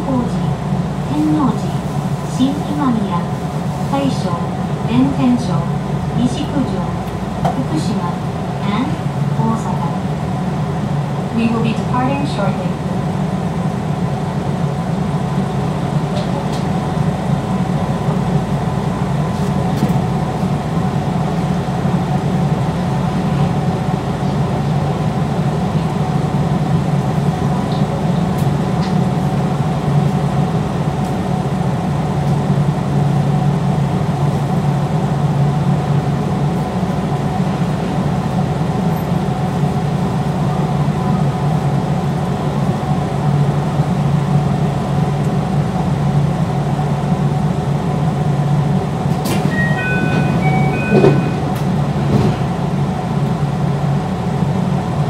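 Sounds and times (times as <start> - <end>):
electric train equipment humming: 0.0 - 55.0.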